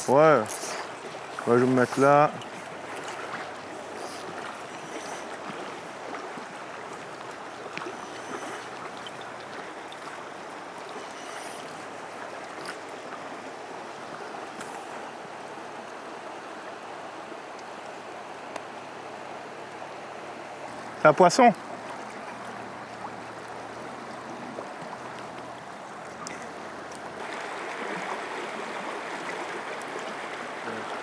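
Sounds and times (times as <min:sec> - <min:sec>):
river water rushing: 0:00.0 - 0:31.0.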